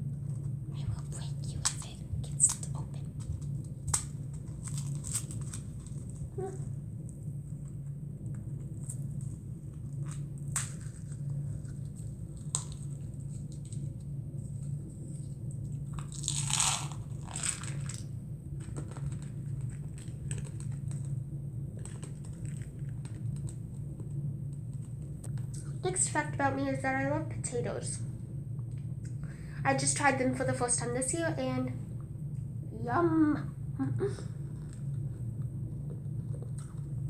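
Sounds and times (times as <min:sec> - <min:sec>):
candy crunching: 0:00.0 - 0:25.8, 0:34.1 - 0:37.0
steady low hum: 0:00.0 - 0:37.0
candy rattling: 0:01.2 - 0:06.7, 0:15.7 - 0:21.2.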